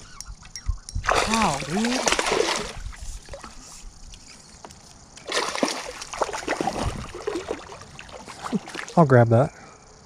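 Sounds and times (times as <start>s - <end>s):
water sloshing: 1.0s - 3.8s, 5.2s - 9.1s
fish splashing at water surface: 1.1s - 3.5s, 5.2s - 9.0s.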